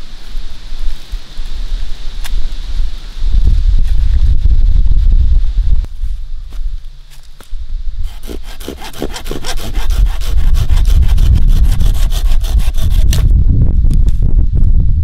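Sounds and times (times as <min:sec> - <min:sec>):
hand saw rasping through branch: 0:08.0 - 0:13.3.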